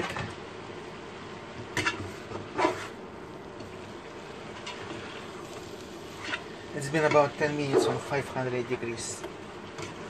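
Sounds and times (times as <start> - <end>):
cabbage sizzling in pan: 1.0 - 10.0
utensil scraping pan: 1.8 - 3.0, 6.1 - 8.0.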